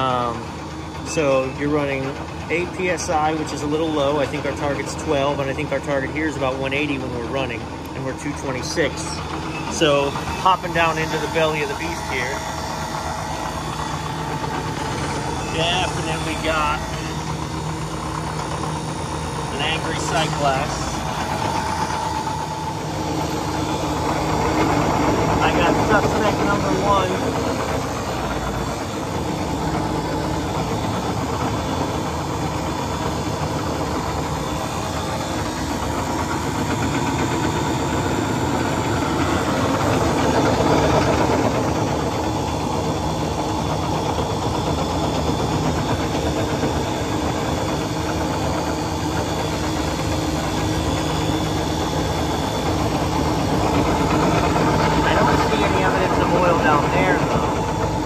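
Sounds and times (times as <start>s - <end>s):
refrigeration compressor humming: 0.0s - 58.0s.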